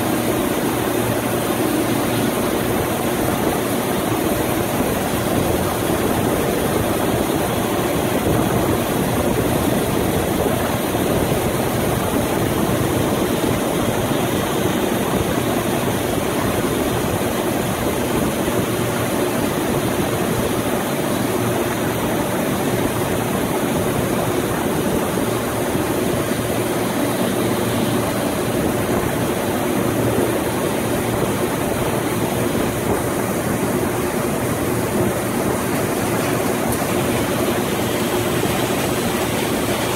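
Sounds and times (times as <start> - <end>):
heavy engine running: 22.9 - 39.9.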